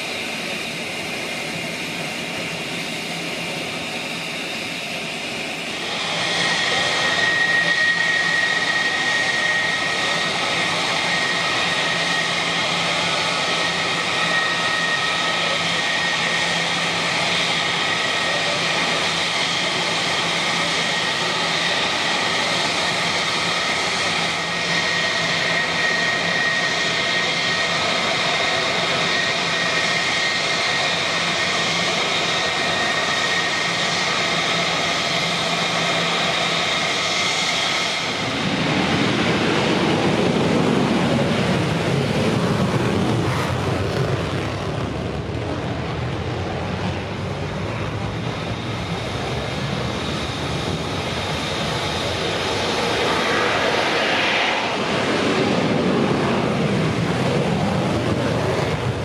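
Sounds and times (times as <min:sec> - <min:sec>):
deep rushing jet noise: 0:00.0 - 0:59.0
jet engine whining: 0:00.0 - 0:59.0.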